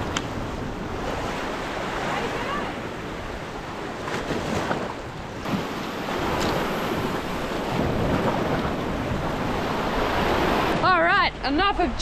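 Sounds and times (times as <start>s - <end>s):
waves splashing over rocks: 0.0s - 11.3s
wind on microphone: 0.0s - 12.0s.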